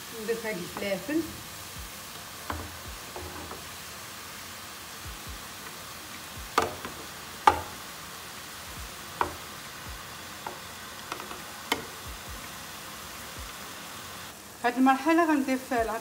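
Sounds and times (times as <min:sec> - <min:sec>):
onions frying in oil: 0:00.0 - 0:16.0
board knocking against pot: 0:02.4 - 0:03.6, 0:06.5 - 0:07.8, 0:09.2 - 0:09.5.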